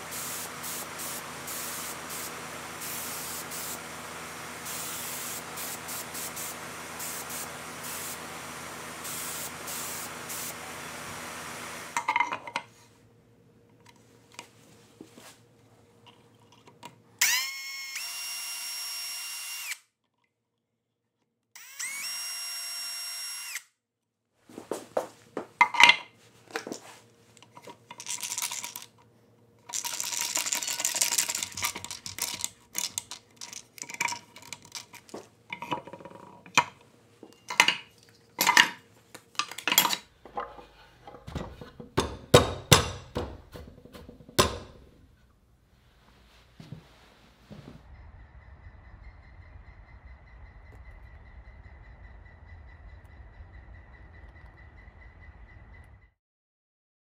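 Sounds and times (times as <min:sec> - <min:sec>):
cordless drill spinning: 0:00.0 - 0:12.0, 0:17.2 - 0:19.9, 0:21.6 - 0:23.7, 0:29.7 - 0:35.2
parts and tools clattering: 0:12.0 - 0:12.8, 0:25.5 - 0:45.0.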